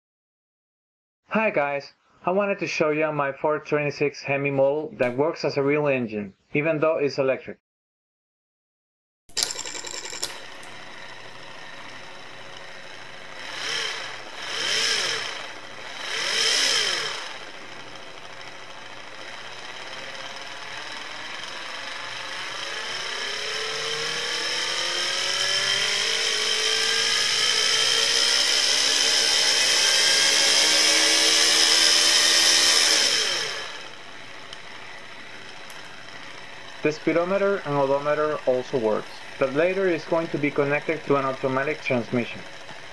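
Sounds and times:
small electric motor whining: 0:09.4 - 0:37.6.

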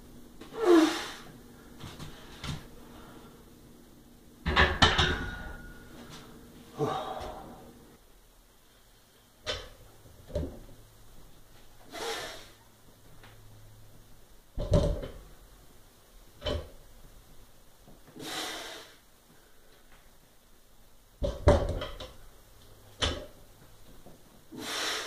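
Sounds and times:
heavy exhales: 0:00.5 - 0:01.3, 0:06.7 - 0:07.7, 0:18.2 - 0:19.0, 0:24.5 - 0:25.0.

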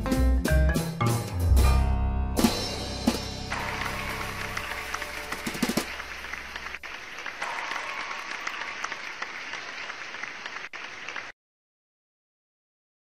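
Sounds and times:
background music: 0:00.0 - 0:09.6
crowd applauding: 0:03.5 - 0:11.4.

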